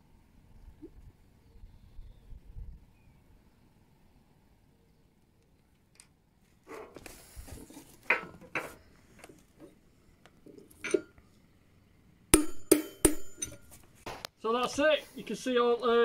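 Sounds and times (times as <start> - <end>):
metal bolt clinking and knocking: 10.5 - 11.2, 12.4 - 13.8.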